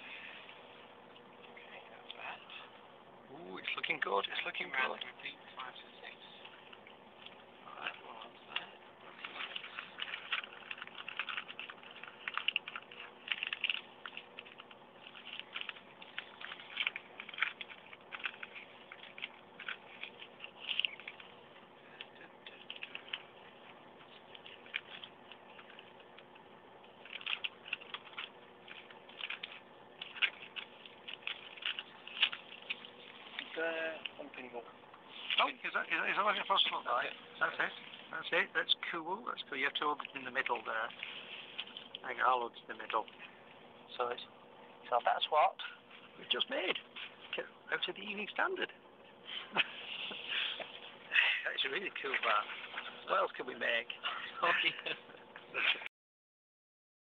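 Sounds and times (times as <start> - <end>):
faint steady hum: 0.0 - 55.9
newspaper crinkling and rustling: 3.6 - 38.5, 39.8 - 43.3, 51.5 - 53.8.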